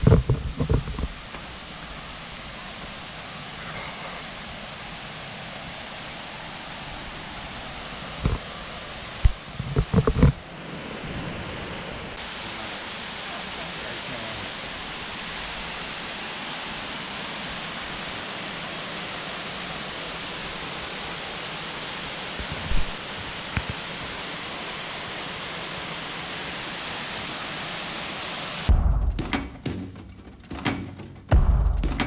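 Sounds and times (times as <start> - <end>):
waterfall rushing: 0.0 - 28.7
music with strong beat: 28.7 - 32.0.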